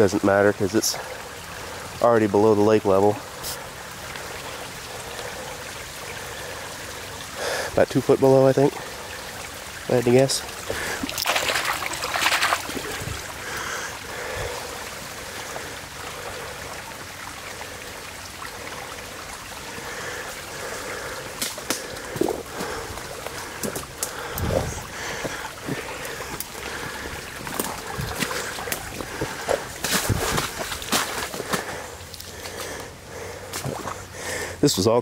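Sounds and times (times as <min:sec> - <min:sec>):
water trickling in channel: 0:00.0 - 0:35.0
hand splashing in water: 0:11.0 - 0:13.2.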